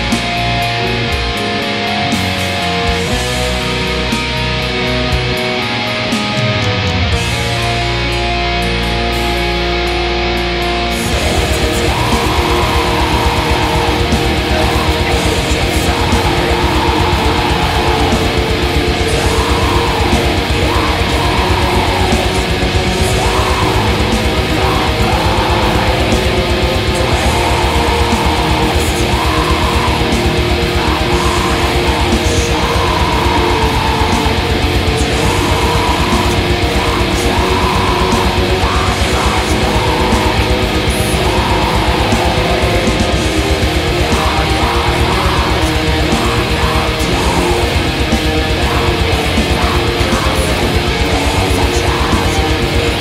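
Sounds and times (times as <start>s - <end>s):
distorted electric guitars: 0.0s - 53.0s
fast drumming: 11.0s - 53.0s.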